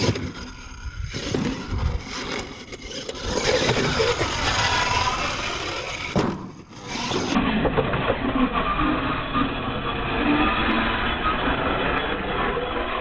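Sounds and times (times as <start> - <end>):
toy truck motor whining: 0.0 - 7.6
tyres on dirt: 0.0 - 8.8.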